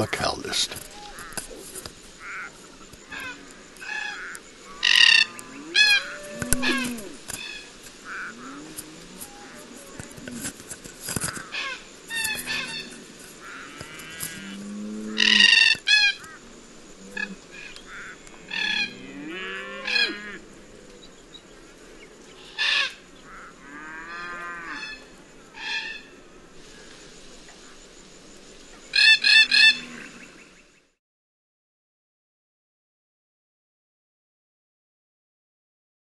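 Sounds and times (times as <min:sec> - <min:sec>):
cockatoos calling harshly: 0:00.0 - 0:14.5, 0:15.2 - 0:16.5, 0:22.4 - 0:23.5, 0:28.9 - 0:30.0.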